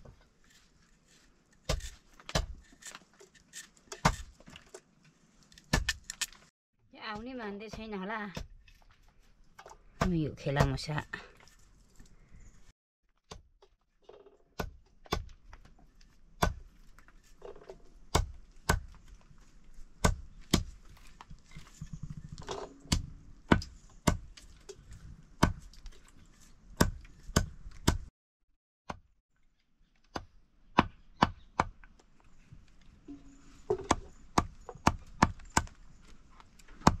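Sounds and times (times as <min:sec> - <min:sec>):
knife chopping: 0:01.6 - 0:02.8.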